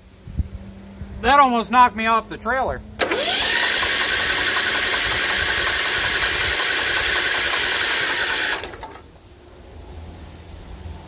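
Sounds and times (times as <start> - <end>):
engine cranking on starter: 3.0 - 9.1.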